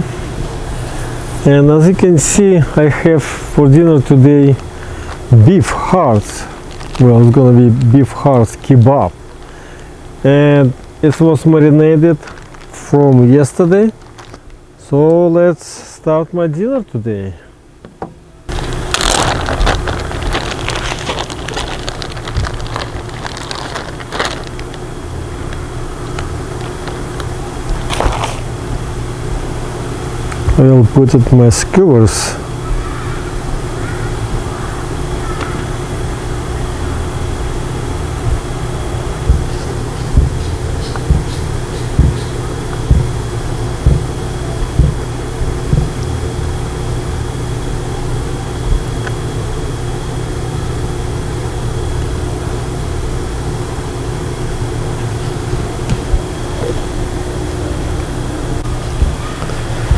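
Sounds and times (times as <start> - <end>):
faint steady whine: 0.0 - 59.9
low mechanical rumble: 0.0 - 59.9
low steady hum: 0.0 - 59.9
plastic bag crinkling: 6.1 - 7.9, 12.1 - 14.6, 18.5 - 24.9
low thump: 39.3 - 40.4, 42.9 - 43.2.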